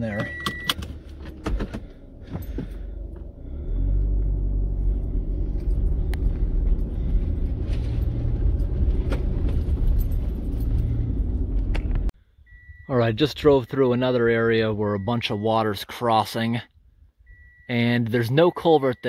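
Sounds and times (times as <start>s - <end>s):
vehicle rumbling on gravel: 1.0s - 12.1s.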